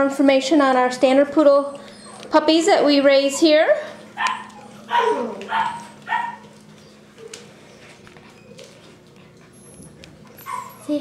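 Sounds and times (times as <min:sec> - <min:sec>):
puppy yipping: 0:01.7 - 0:02.4, 0:04.2 - 0:08.7, 0:09.5 - 0:11.0.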